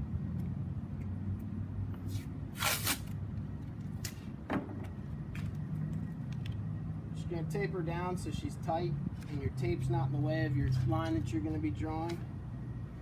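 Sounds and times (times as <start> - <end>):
adhesive tape ripping off roll: 2.1 - 3.2.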